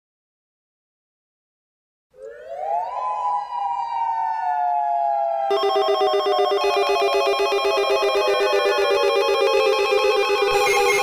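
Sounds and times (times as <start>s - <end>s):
warning siren rising and falling: 2.2s - 11.0s
rapid electronic trill: 5.5s - 11.0s.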